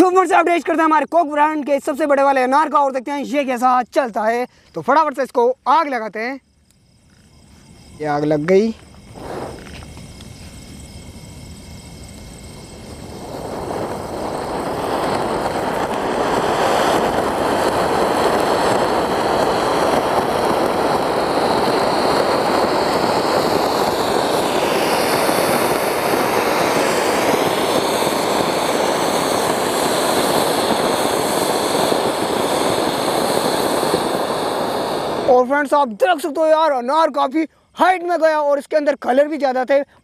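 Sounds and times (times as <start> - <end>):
fountain firework hissing: 6.1 - 37.1.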